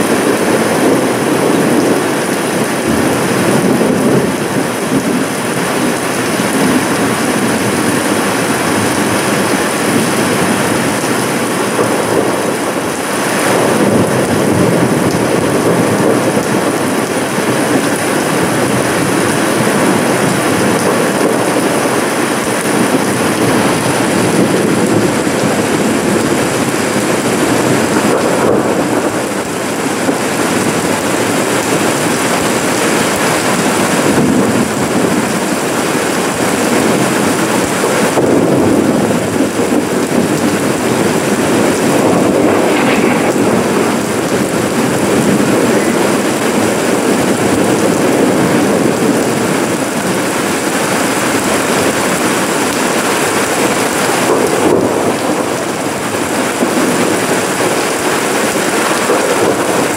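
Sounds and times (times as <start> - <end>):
rain falling on lawn: 0.0 - 59.9.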